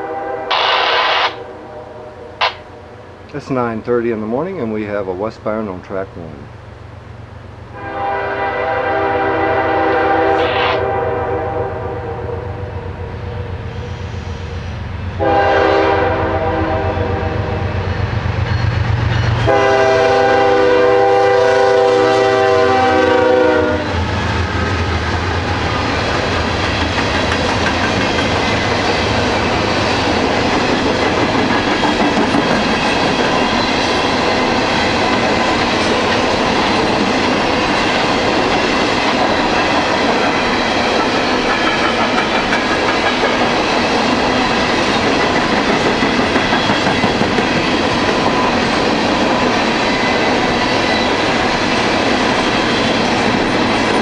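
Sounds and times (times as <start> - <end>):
locomotive air horn blasts: 0.0 - 3.0, 7.8 - 13.2, 15.2 - 17.6, 19.4 - 24.0
train cars rolling past: 12.6 - 54.0
wheels clicking over rail joints: 24.8 - 29.5.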